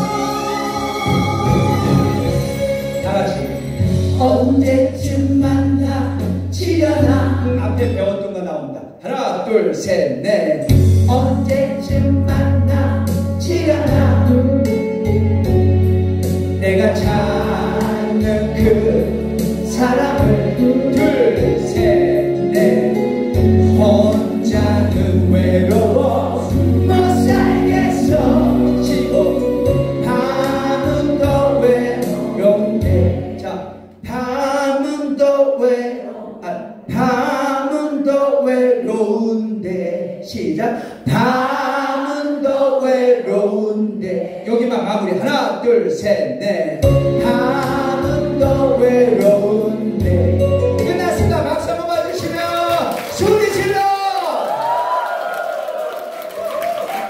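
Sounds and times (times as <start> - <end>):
group singing in unison: 0.0 - 2.7, 17.0 - 23.0, 24.4 - 33.8, 35.8 - 37.4, 38.6 - 44.9
backing track with bass: 0.0 - 8.2, 10.5 - 34.5, 46.4 - 54.0.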